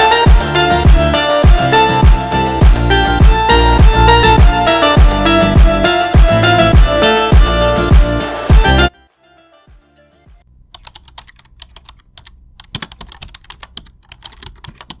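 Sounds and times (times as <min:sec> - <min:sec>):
keyboard typing: 0:10.7 - 0:15.0.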